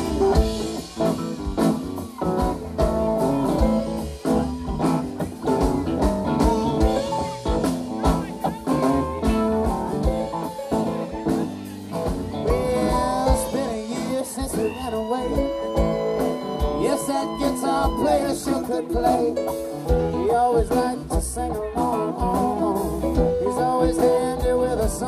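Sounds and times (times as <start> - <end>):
bass guitar: 0.0 - 25.0
drums: 0.0 - 25.0
electric guitars: 0.0 - 25.0
person singing: 6.4 - 25.0.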